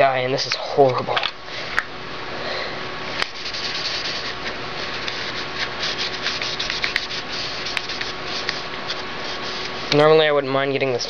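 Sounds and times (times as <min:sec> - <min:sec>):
paper towel wiping: 0:03.2 - 0:10.2.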